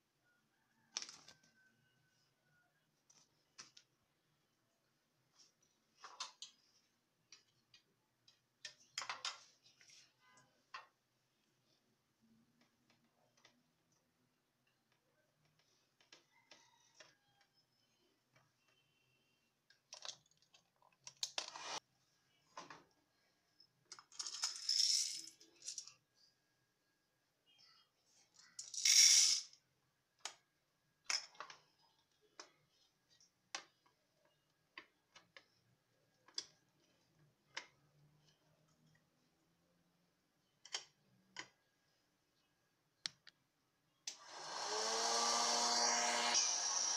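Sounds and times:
popcorn kernels rattling: 24.1 - 25.9.

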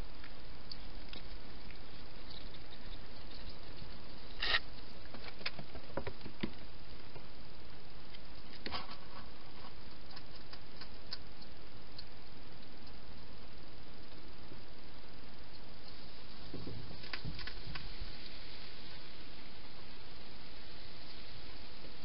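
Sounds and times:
steady background hiss: 0.0 - 22.0
hedgehog foraging clicks and rustles: 0.2 - 7.3, 8.1 - 13.4.

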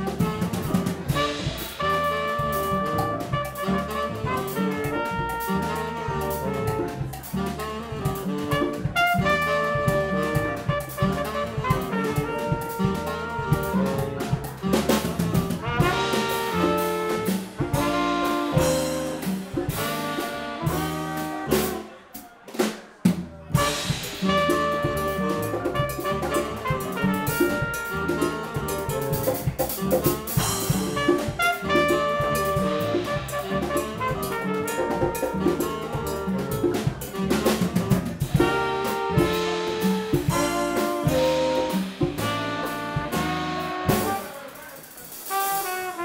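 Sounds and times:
upright bass: 0.0 - 21.9, 23.1 - 44.3
saxophone: 0.0 - 22.1, 23.5 - 46.0
trumpet: 0.0 - 22.7, 23.4 - 46.0
congas: 0.0 - 46.0
drum kit: 0.0 - 46.0.

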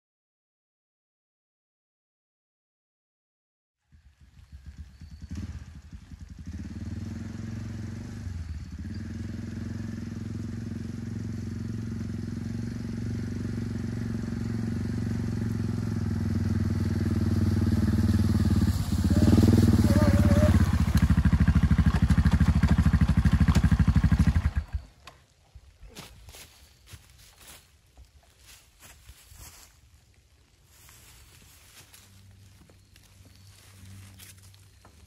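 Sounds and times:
quad bike engine running: 3.8 - 25.2, 31.8 - 35.0.

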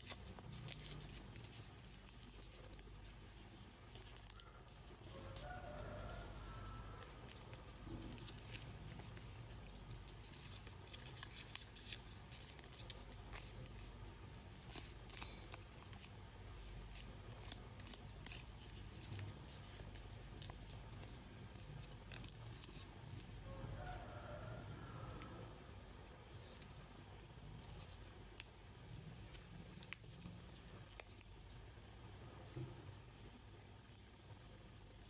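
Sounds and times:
paper being folded and creased: 0.0 - 23.4, 29.2 - 31.3.

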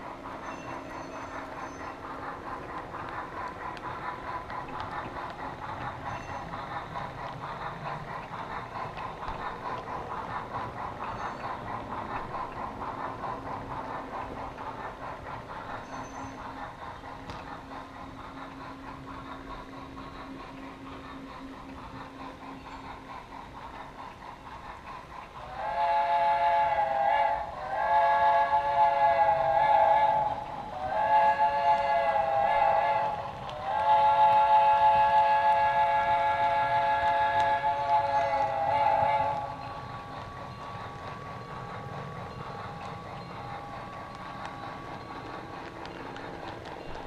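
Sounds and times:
model train humming: 0.0 - 47.0
wheels clicking on rails: 0.0 - 47.0
steam locomotive whistle: 25.4 - 39.7.

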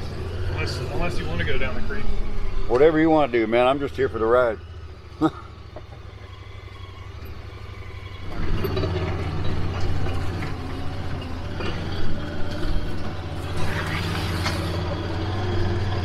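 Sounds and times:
utility vehicle engine humming: 0.0 - 16.0
knocks and rattles: 5.7 - 6.3, 8.1 - 13.3.

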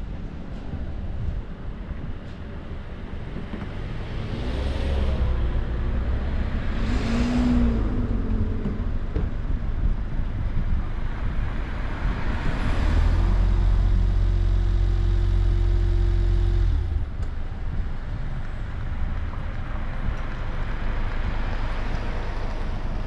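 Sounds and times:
car road and engine noise: 0.0 - 23.0
vehicles passing by: 0.0 - 23.0.

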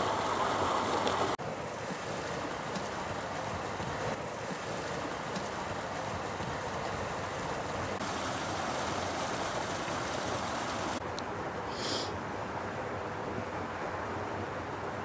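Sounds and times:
water rushing over weir: 0.0 - 11.0.

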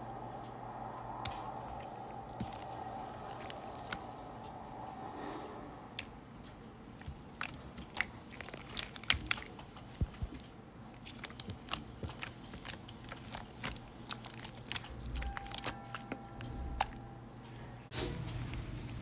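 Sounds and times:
fingers squishing slime: 7.0 - 17.1.

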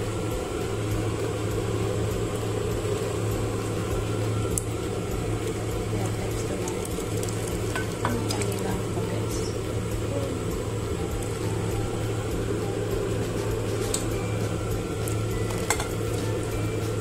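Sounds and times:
constant low hum: 0.0 - 17.0
soup pouring into a bowl: 6.8 - 8.6.

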